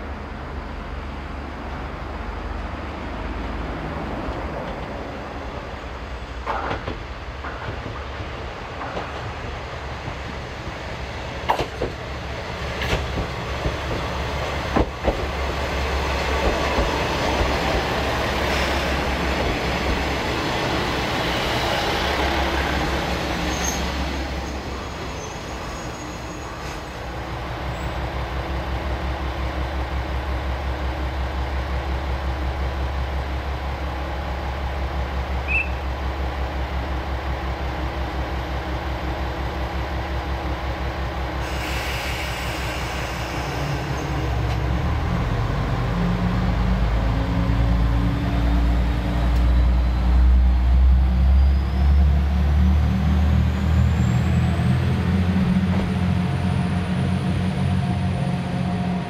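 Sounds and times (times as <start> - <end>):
train running noise: 0.4 - 59.0
metallic clanks of train wheels: 6.4 - 9.4, 11.4 - 12.0.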